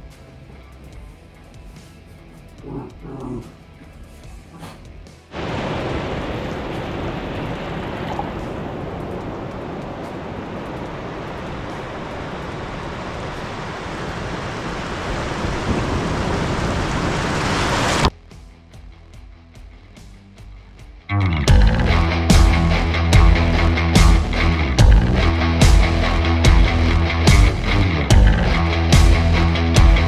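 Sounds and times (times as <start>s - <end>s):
surf washing over shore: 5.3s - 18.1s.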